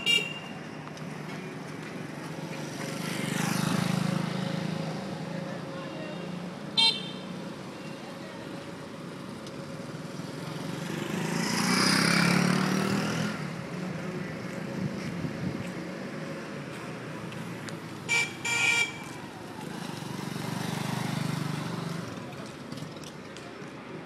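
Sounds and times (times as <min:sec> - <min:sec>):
traffic engine hum: 0:00.0 - 0:24.0
vehicle passing by: 0:02.2 - 0:05.6, 0:09.8 - 0:17.1.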